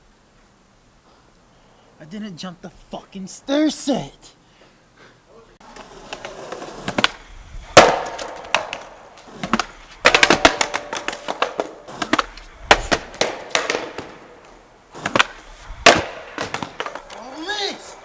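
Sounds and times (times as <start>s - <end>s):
skateboard clattering on concrete: 5.6s - 18.0s.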